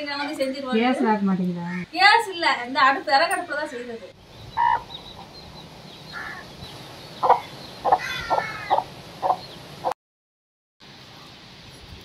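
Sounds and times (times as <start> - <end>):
chicks peeping: 4.3 - 9.6
hen clucking: 4.5 - 6.5, 7.2 - 9.5.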